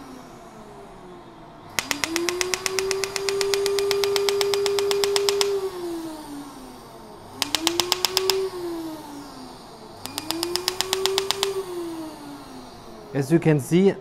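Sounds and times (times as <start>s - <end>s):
humming tone: 1.7s - 9.3s, 10.0s - 13.1s.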